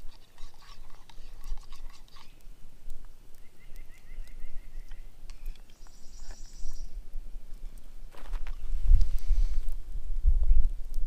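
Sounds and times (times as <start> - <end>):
wind buffeting microphone: 8.1 - 11.0.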